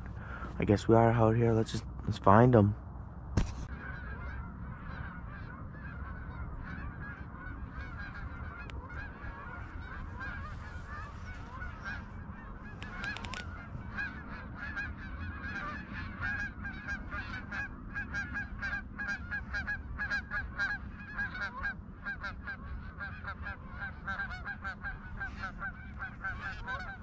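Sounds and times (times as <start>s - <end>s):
wind rumble: 0.0s - 27.0s
geese honking: 3.7s - 27.0s
sharp clicks: 12.8s - 13.5s.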